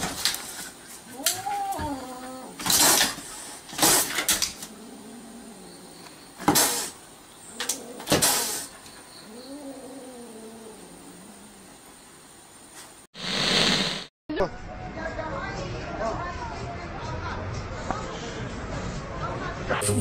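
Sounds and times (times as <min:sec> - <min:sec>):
kitten hissing and spitting: 0:02.5 - 0:04.3, 0:06.4 - 0:07.0, 0:08.0 - 0:08.8.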